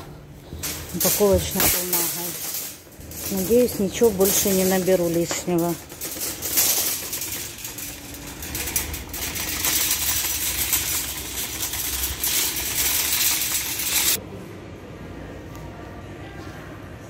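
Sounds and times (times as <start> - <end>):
shopping cart rattling: 0.4 - 14.2
cart wheels rumbling on asphalt: 3.0 - 14.2.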